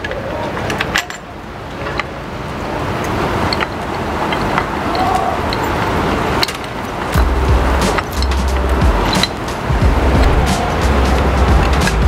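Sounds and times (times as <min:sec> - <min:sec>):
steady rushing noise: 0:00.0 - 0:12.0
small metal clicks and taps: 0:03.0 - 0:09.6.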